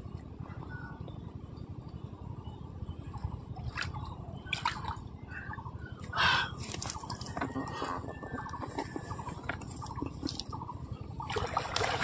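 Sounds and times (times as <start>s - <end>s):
steady low rumble: 0.0s - 12.0s
water dripping and splashing: 11.3s - 12.0s.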